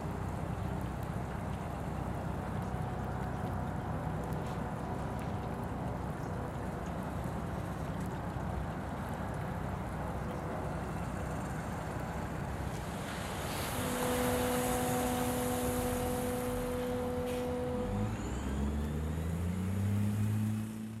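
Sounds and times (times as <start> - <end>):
vehicle engine humming: 0.0 - 21.0
steady rushing noise: 11.8 - 18.4
engine accelerating: 13.2 - 21.0.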